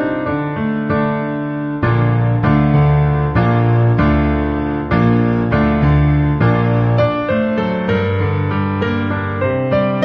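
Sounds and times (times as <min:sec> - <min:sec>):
slow piano melody: 0:00.0 - 0:10.0.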